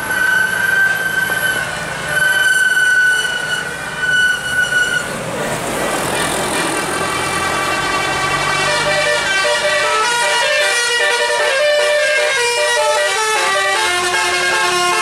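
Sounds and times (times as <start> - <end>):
bus engine: 0.0 - 15.0
traffic noise: 0.0 - 15.0
bus horn note: 6.6 - 15.0
multi-tone horn playing tune: 7.0 - 15.0.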